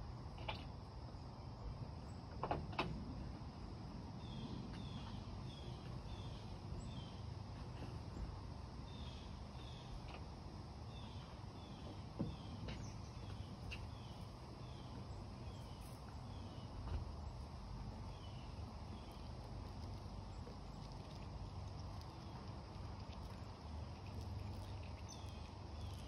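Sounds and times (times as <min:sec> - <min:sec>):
steady low rumble: 0:12.4 - 0:26.0.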